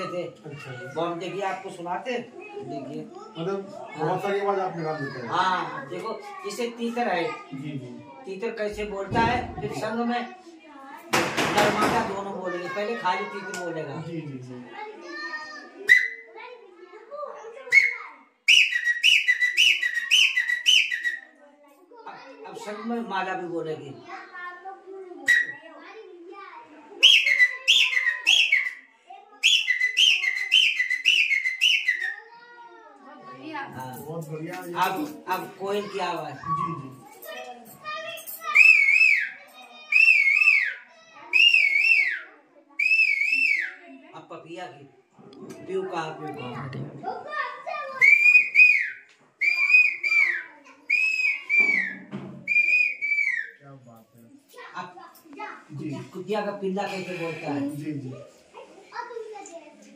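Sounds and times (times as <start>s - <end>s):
man whistling bird call: 17.8s - 21.2s, 27.0s - 28.8s, 29.4s - 32.2s, 40.0s - 40.8s, 41.4s - 42.2s, 42.8s - 43.7s, 48.0s - 53.5s.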